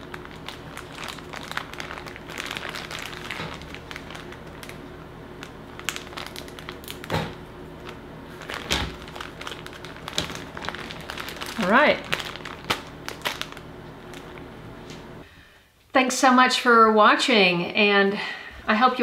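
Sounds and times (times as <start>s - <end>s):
plastic bags crinkling: 0.0s - 15.2s.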